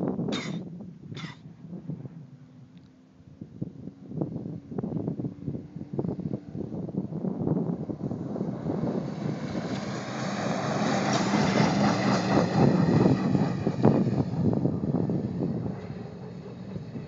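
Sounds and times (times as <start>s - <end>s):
pickup truck engine passing: 5.6s - 17.0s.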